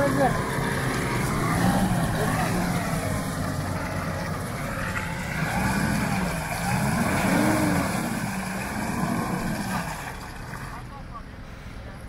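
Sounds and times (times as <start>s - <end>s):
pickup engine revving under load: 0.0s - 10.9s.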